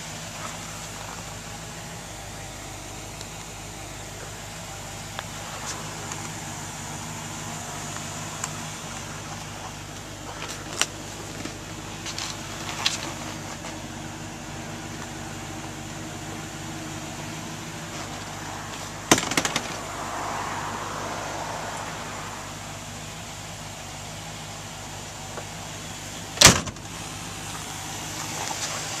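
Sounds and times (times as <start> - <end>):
sharp clicks and knocks: 19.1 - 19.8.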